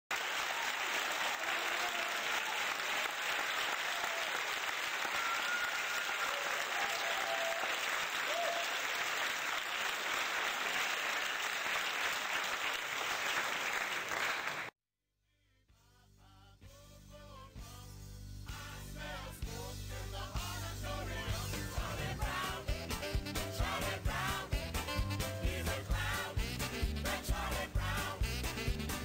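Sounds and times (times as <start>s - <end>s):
audience applause: 0.1s - 14.7s
faint whistles: 5.1s - 6.1s.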